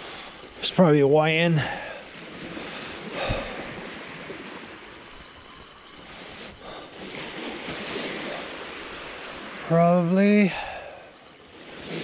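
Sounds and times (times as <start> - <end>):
waves washing on shingle beach: 0.0 - 12.0.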